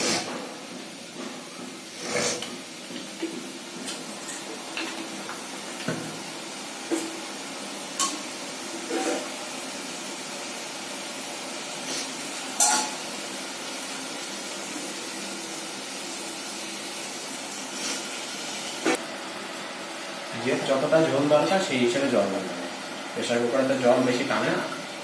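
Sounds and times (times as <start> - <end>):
utensils clinking against pots: 2.0 - 5.1, 8.0 - 9.3, 12.6 - 13.1.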